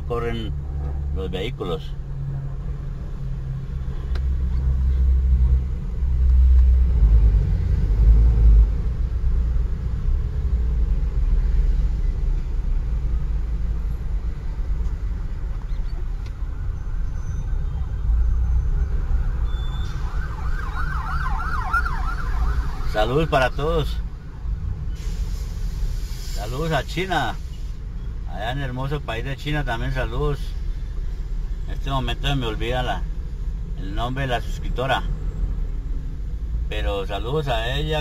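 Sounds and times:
truck engine and road rumble: 0.0 - 38.0
emergency siren warbling: 16.5 - 24.4.

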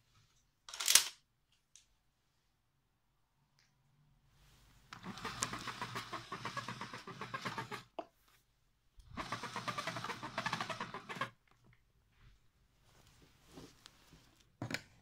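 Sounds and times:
cable rattling through cord reel: 4.9 - 7.9, 9.0 - 11.4.

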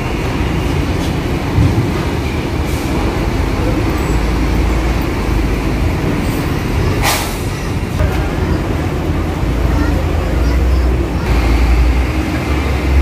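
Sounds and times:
bus diesel engine rumbling: 0.0 - 13.0
sharp air hiss: 7.0 - 7.6.

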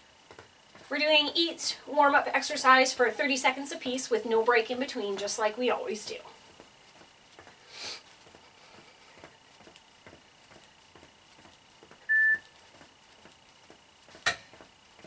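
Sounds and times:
person breathing: 7.6 - 9.2
sneakers tapping on foam mats: 8.2 - 12.1, 12.7 - 15.0
short electronic beep: 12.1 - 12.4.

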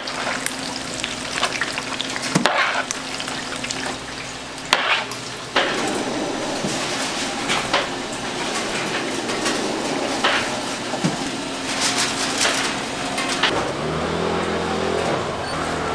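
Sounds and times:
fish cakes sizzling in oil: 0.0 - 5.7.

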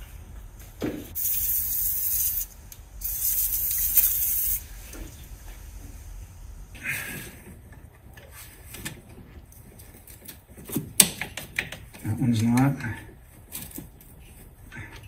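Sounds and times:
aerosol can spraying: 1.2 - 4.7.

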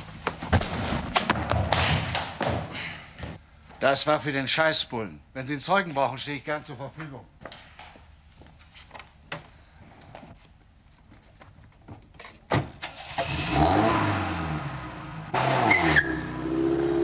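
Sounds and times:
car engine starting and revving: 12.8 - 17.0.

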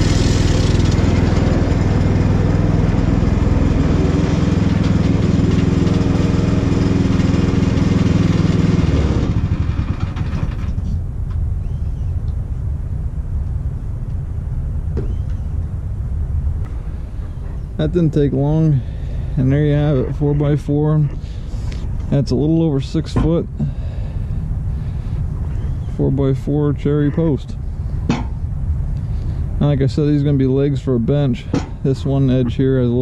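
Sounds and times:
petrol engine running: 0.0 - 11.4.

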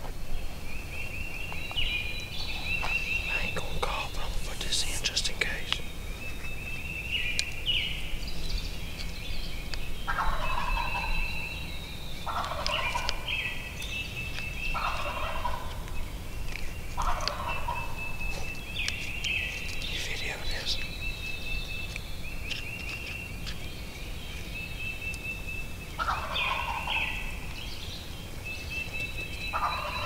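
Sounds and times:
songbirds singing: 0.0 - 30.0
turkey gobbling: 10.1 - 11.1, 12.3 - 13.2, 14.8 - 15.8, 17.0 - 18.5, 26.0 - 27.2, 29.5 - 30.0.

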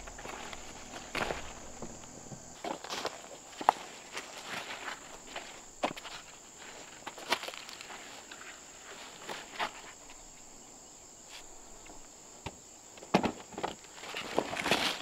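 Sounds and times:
leaves rustling: 0.0 - 10.5
high insect drone: 0.0 - 15.0.

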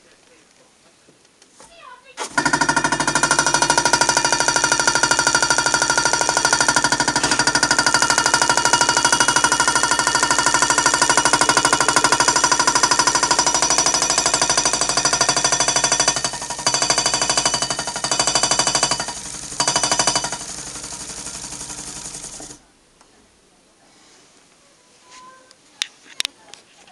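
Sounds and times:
hot-air engine rattling: 2.2 - 22.7.

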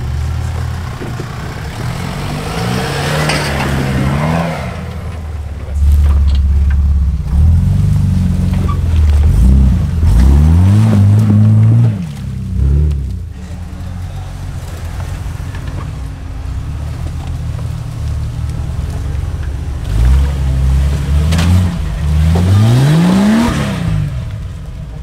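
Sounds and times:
engine revving hard: 1.4 - 6.1, 7.3 - 13.1, 19.8 - 24.4.

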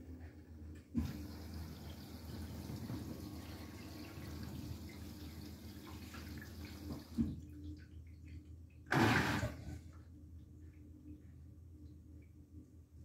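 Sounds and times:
washing machine hum: 0.0 - 13.0
water hissing into drum: 1.0 - 7.4, 8.9 - 9.8.

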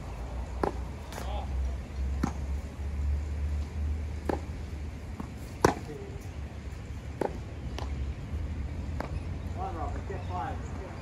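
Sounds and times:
tennis ball bouncing: 0.5 - 1.3, 2.1 - 2.6, 4.2 - 5.9, 7.1 - 8.0, 8.9 - 9.2
tennis racket hitting ball: 4.2 - 4.5, 5.2 - 5.9.

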